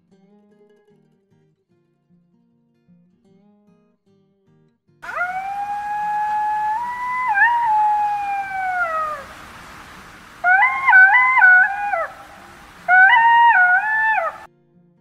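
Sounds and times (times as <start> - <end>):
dog howling: 5.0 - 14.5.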